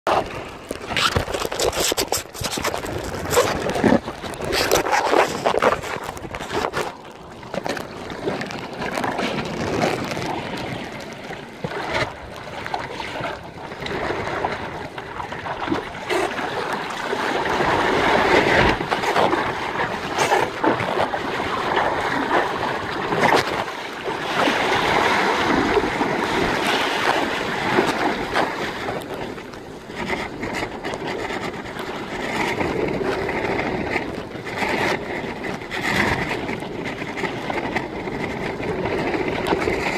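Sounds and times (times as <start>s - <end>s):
water splashing: 0.1s - 33.3s
wind rushing over microphone: 0.1s - 39.9s
knocks and rubbing: 0.8s - 6.9s.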